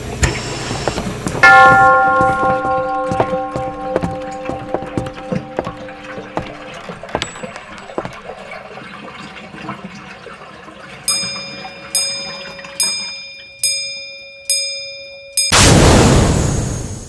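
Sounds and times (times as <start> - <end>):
chime-like strikes ringing: 1.4 - 8.0, 11.1 - 15.7
crackling clinking texture: 1.4 - 8.3.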